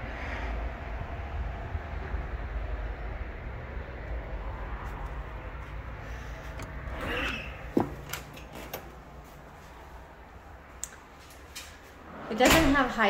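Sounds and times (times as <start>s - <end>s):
low outdoor rumble: 0.0s - 13.0s
wooden door opening: 6.5s - 9.0s.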